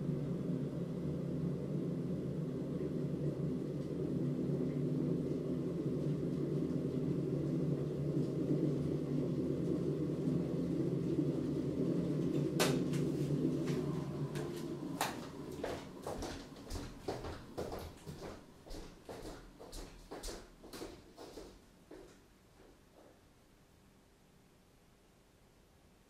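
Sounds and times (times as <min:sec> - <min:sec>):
kitchen fan humming: 0:01.0 - 0:21.4.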